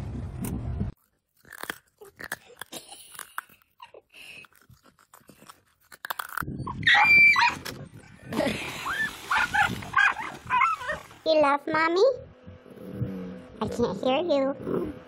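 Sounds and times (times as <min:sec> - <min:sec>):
dog crunching a hard snack: 0:01.0 - 0:06.5.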